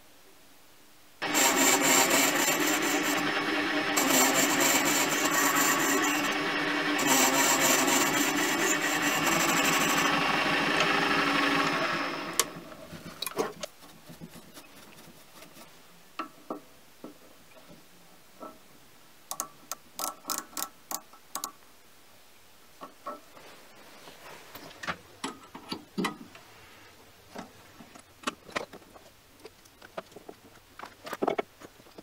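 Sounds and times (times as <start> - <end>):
hissy cutting noise: 1.2 - 12.6
lathe motor whine: 1.2 - 12.6.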